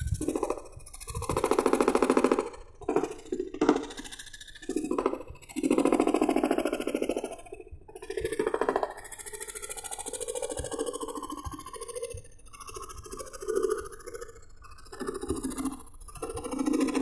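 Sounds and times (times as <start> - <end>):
jigsaw cutting wood: 0.0 - 4.0.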